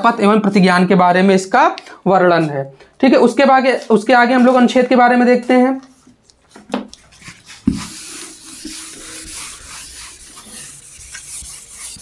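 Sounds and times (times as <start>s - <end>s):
duster rubbing on whiteboard: 7.1s - 12.0s.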